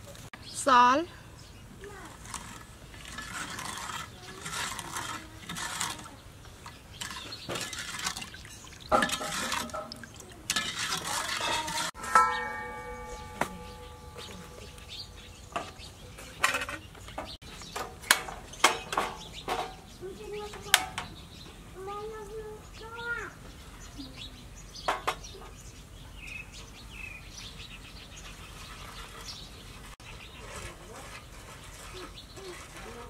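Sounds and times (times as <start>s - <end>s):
metal ladle stirring in pot: 2.1s - 15.9s
pot ringing from ladle knock: 12.0s - 15.0s.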